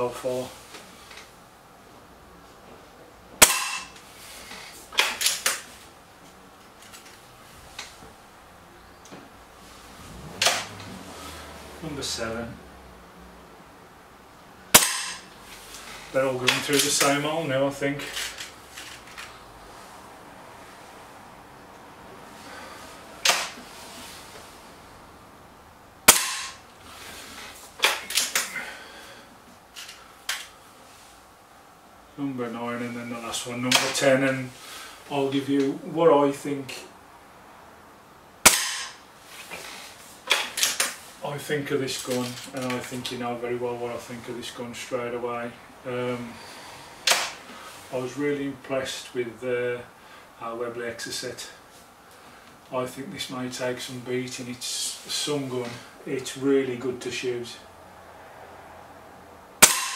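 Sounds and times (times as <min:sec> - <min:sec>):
air rifle shot: 0:03.4 - 0:03.9, 0:14.8 - 0:15.2, 0:26.1 - 0:26.6, 0:38.5 - 0:39.0, 0:59.6 - 0:59.9.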